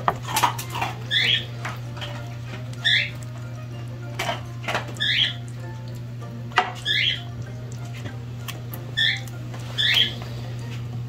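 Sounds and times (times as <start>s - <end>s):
steady low hum: 0.0s - 11.0s
high chirping calls: 1.0s - 1.5s, 2.8s - 3.2s, 5.0s - 5.5s, 6.8s - 7.3s, 9.0s - 10.2s.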